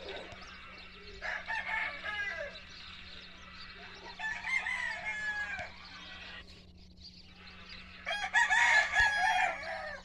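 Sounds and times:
rooster crowing: 1.0s - 2.8s, 3.8s - 6.4s, 8.0s - 10.0s.

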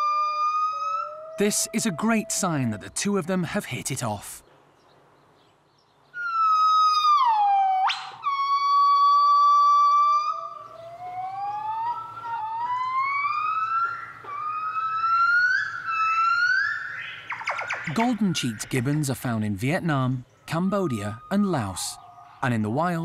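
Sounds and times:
gibbons singing duet: 6.2s - 23.0s.

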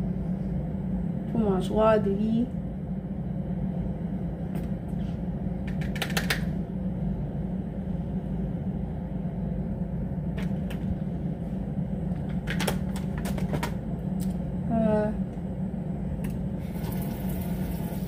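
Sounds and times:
low room hum: 0.0s - 18.0s.

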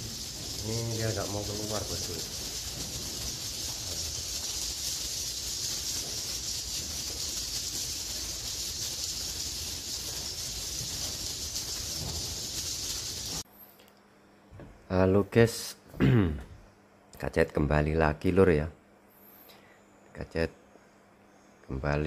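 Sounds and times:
swiftlets twittering: 0.0s - 13.4s.

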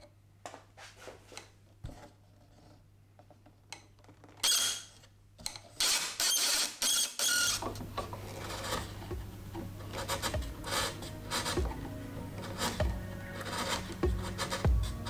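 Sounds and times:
chisel paring and scraping wood: 7.2s - 15.0s
wooden parts clattering: 7.5s - 15.0s.

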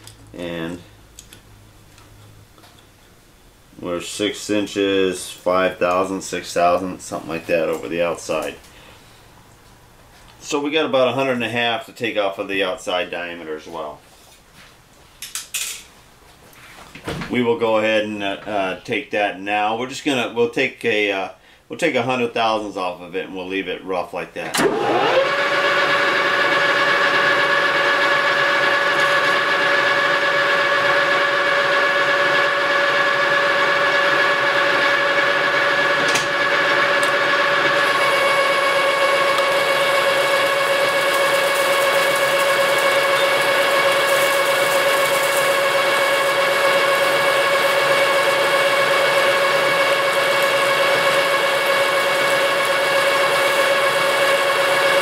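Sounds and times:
metal lathe gear whine: 32.4s - 55.0s.

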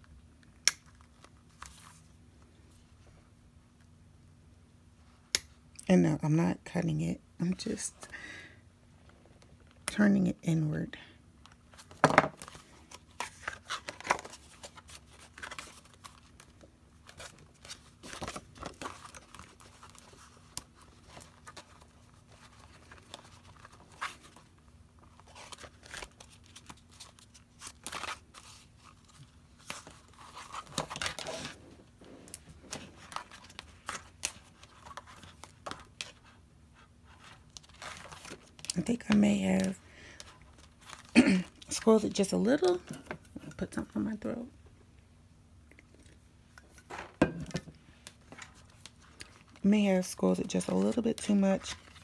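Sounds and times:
notebook pages rustling: 0.8s - 2.2s, 11.6s - 42.9s, 47.8s - 52.0s.

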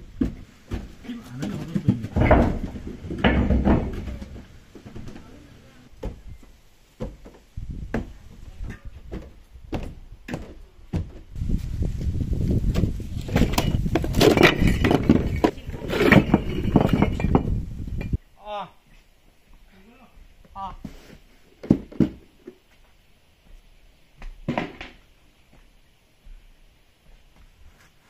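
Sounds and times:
footsteps on wooden stairs: 0.0s - 5.4s, 6.0s - 11.4s, 20.2s - 28.0s
bricks clattering onto pile: 0.2s - 5.2s, 13.2s - 18.2s.

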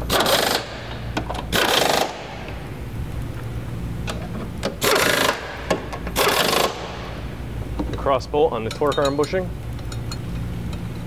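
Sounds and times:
pneumatic impact wrench hammering: 0.0s - 2.6s, 4.1s - 7.2s.

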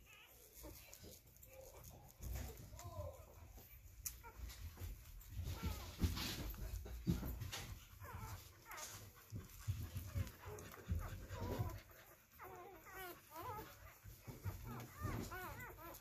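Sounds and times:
puppies squeaking and whimpering: 0.0s - 16.0s.

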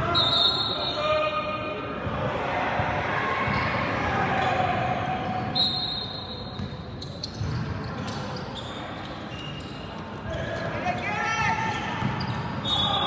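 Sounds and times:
crowd noise with voices: 0.0s - 13.0s
basketball bouncing on court: 6.5s - 8.2s, 11.4s - 12.7s.

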